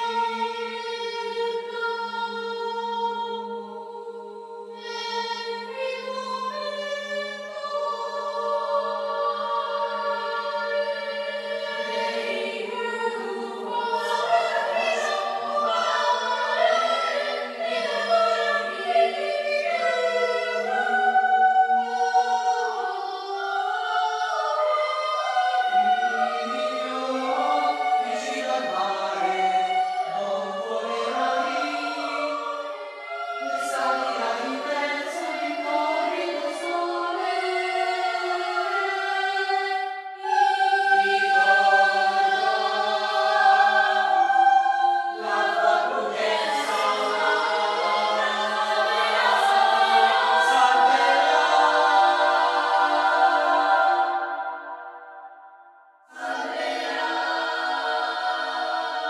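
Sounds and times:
children's choir singing: 0:00.0 - 0:55.4, 0:56.1 - 0:59.0.

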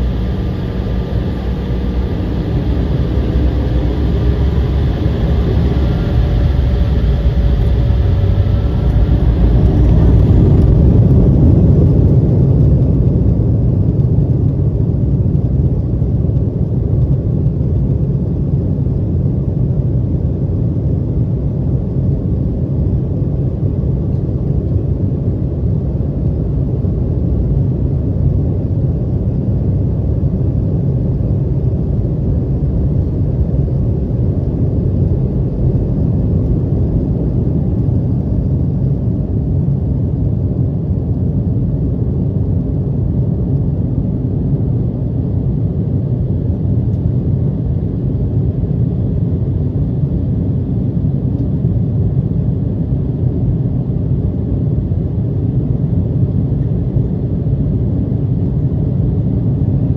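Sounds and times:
jet engines and runway rumble in cabin: 0:00.0 - 0:59.9.

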